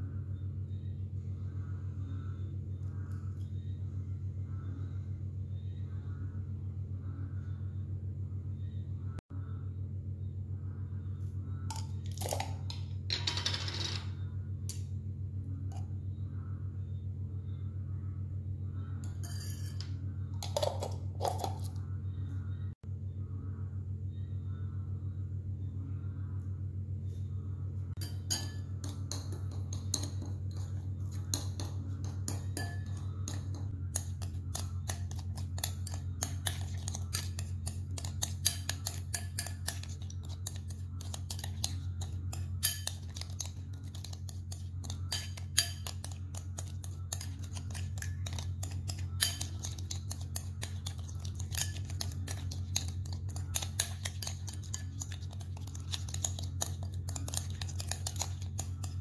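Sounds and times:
steady low hum: 0.0 - 59.0
metal spoon clinking on bowl: 19.0 - 21.7, 28.0 - 59.0.

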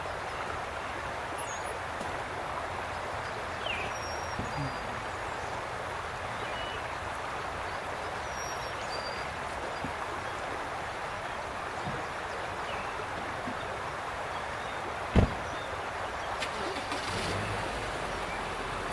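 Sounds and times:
birds chirping: 0.0 - 18.9
outdoor background hiss: 0.0 - 18.9.

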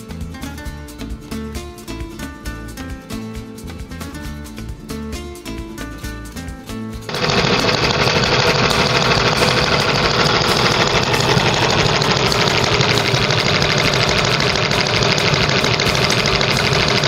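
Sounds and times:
model engine running: 7.1 - 17.0.

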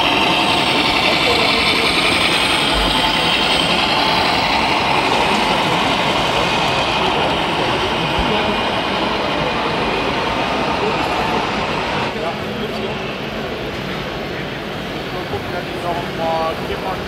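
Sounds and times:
machine noise: 0.0 - 12.2
many voices: 0.0 - 17.0.

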